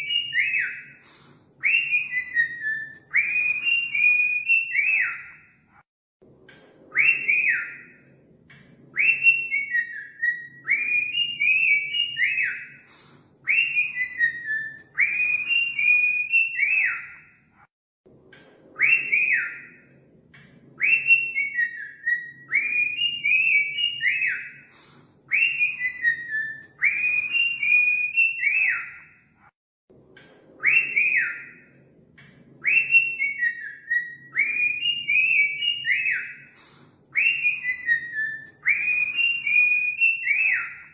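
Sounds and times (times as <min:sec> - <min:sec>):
cockatiel whistling: 0:00.0 - 0:05.4, 0:09.0 - 0:17.3, 0:20.8 - 0:29.1, 0:32.6 - 0:40.9.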